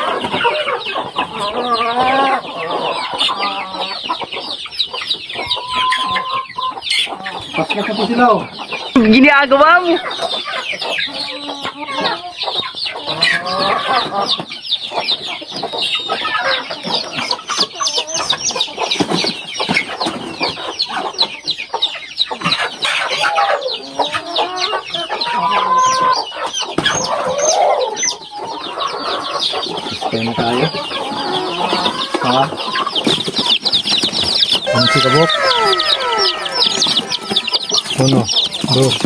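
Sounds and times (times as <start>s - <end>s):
chickens clucking: 0.0s - 39.0s
high falling peeps: 14.9s - 39.0s.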